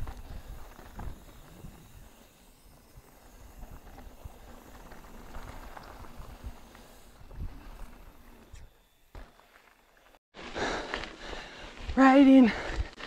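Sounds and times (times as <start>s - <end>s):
bike tyres crunching on trail: 0.0s - 13.0s.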